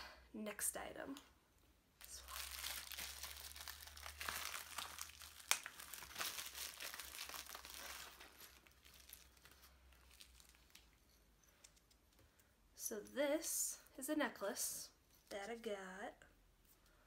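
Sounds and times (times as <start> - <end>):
plastic bag crinkling: 2.0 - 11.2.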